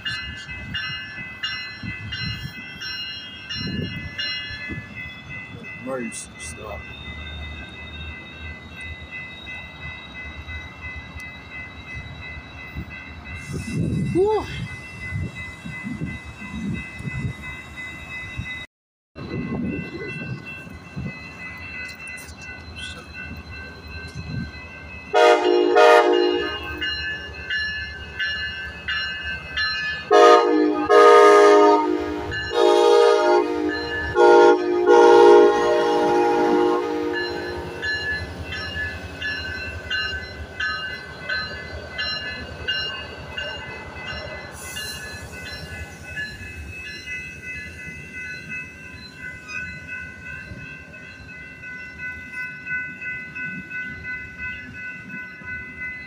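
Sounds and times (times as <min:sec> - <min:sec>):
crossing warning bell dinging: 0:00.0 - 0:56.0
rumble of passing train cars: 0:00.0 - 0:56.0
train horn: 0:25.1 - 0:26.8, 0:30.1 - 0:37.4.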